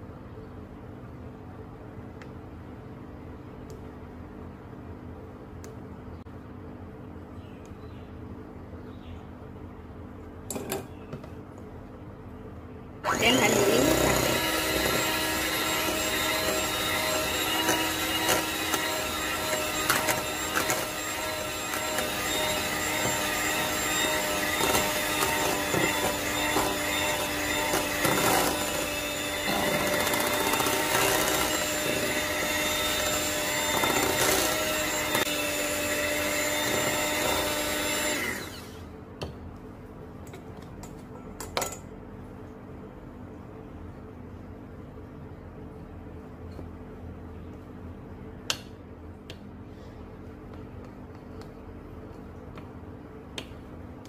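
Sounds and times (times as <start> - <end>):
electric hand mixer whisking: 13.1 - 38.9.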